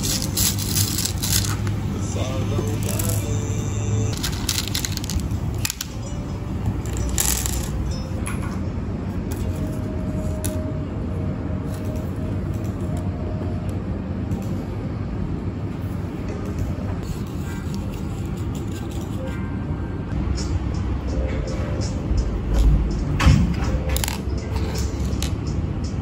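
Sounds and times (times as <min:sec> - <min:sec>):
steady low hum: 0:00.0 - 0:26.0
plastic beads clicking: 0:04.1 - 0:06.0, 0:06.9 - 0:07.8.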